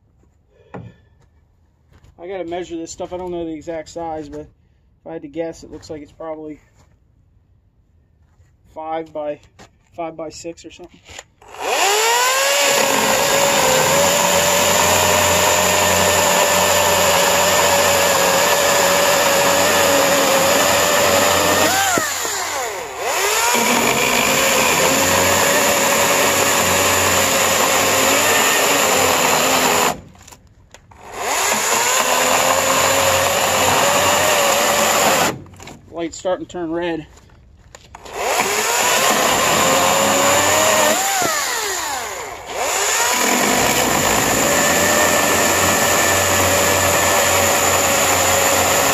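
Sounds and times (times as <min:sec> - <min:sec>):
electric chainsaw motor whining: 0:11.4 - 0:35.4, 0:38.0 - 0:48.9
chain rasping through wood: 0:11.5 - 0:30.4, 0:31.0 - 0:35.8, 0:38.0 - 0:48.9.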